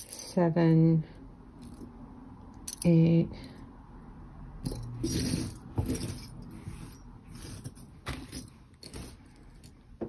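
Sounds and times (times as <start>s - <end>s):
metal jewelry clinking and scraping: 0.0s - 0.5s, 1.5s - 3.6s, 4.6s - 10.0s.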